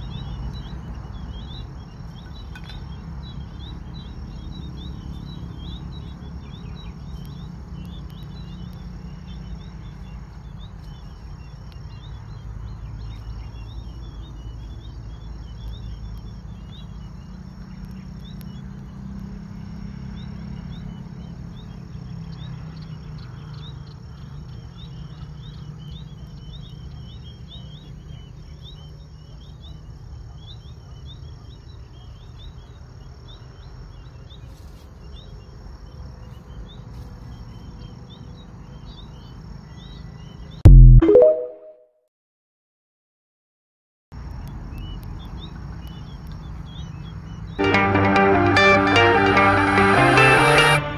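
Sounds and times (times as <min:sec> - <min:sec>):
high insect chirps: 0:00.0 - 0:40.5
insects trilling: 0:00.0 - 0:40.6.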